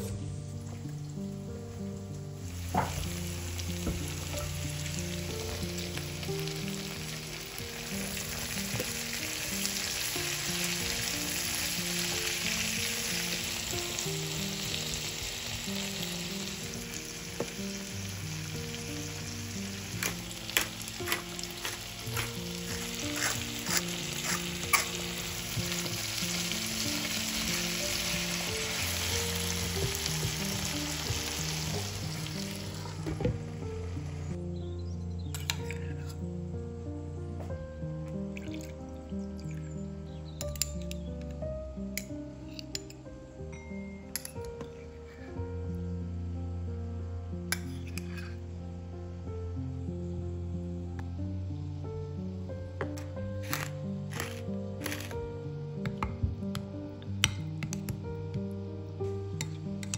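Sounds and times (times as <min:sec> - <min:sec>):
soft background music: 0:00.0 - 0:59.9
vegetables sizzling in a pan: 0:00.9 - 0:34.4, 0:52.9 - 0:55.2.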